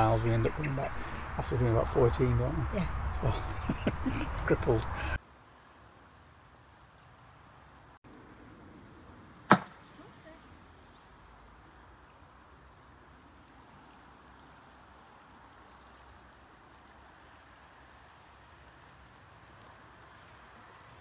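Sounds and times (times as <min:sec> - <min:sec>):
river flowing: 0:00.0 - 0:21.0
sharp knock: 0:09.5 - 0:09.7.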